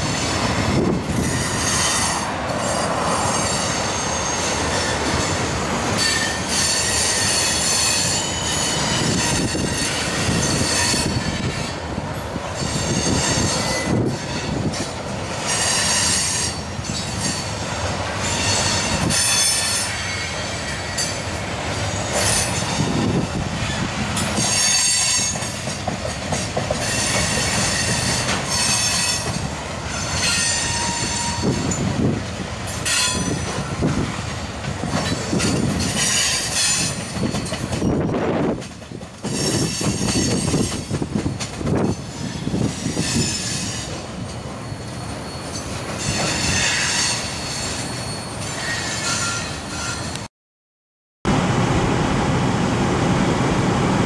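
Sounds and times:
train wheels rumbling on rail: 0.0s - 50.3s, 51.3s - 54.0s
high-pitched wheel squeal: 6.0s - 11.7s, 12.6s - 14.7s, 18.2s - 21.2s, 26.8s - 31.8s, 41.9s - 50.3s.

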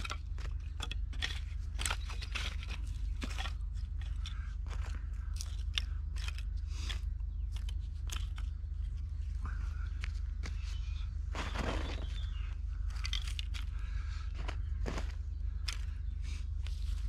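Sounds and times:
sticks clicking and snapping: 0.0s - 9.0s, 12.9s - 13.9s, 15.6s - 16.0s
leaf litter crunching: 11.3s - 12.2s.

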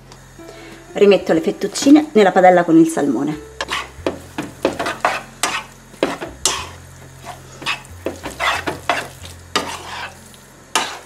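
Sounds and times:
wooden spatula scraping pan: 3.6s - 10.2s, 10.8s - 11.0s
pasta tossed in frying pan: 3.7s - 11.0s.

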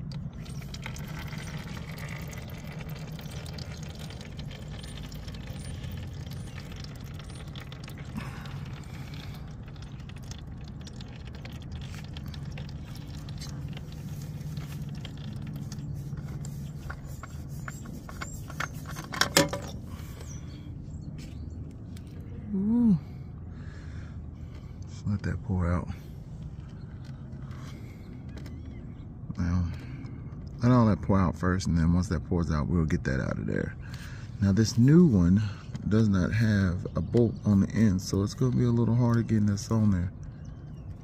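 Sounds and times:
oil trickling into plastic pan: 0.0s - 20.2s
steady low hum: 0.0s - 41.0s.

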